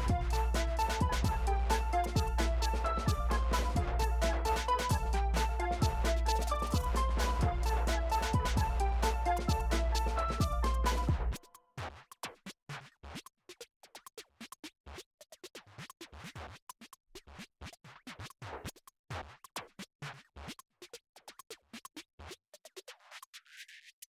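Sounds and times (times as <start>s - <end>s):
sparse clicky percussive music: 0.0s - 11.4s.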